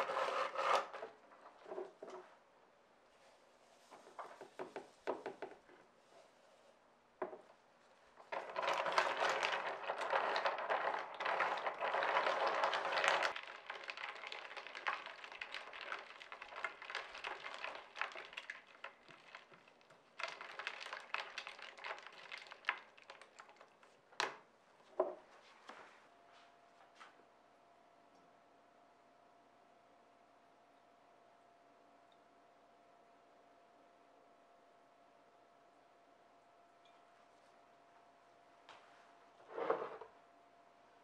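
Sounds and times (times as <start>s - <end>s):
plastic spoon scraping beaker: 0.0s - 2.2s, 39.4s - 40.1s.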